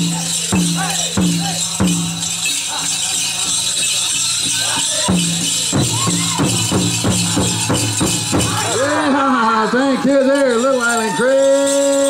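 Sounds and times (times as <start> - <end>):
pounded drum beats: 0.0 - 3.6, 4.4 - 9.2
group singing high over drum: 0.0 - 9.1
dancers' bells jingling: 0.0 - 12.0.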